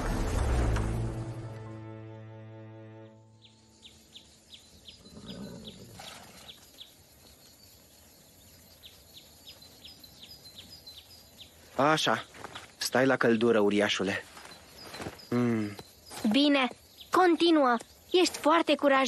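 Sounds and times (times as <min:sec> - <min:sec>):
small birds chirping: 0:03.2 - 0:19.0.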